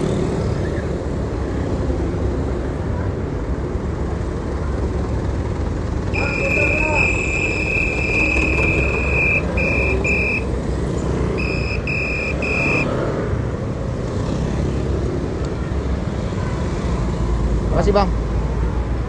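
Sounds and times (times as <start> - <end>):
traffic rumbling: 0.0 - 19.0
shrill whistle blasts: 6.2 - 10.5, 11.4 - 12.9.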